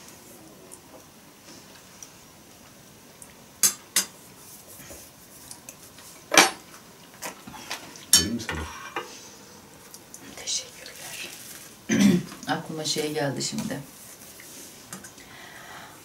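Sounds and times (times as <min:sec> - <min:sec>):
cutlery clinking on metal bowls: 0:03.6 - 0:04.2.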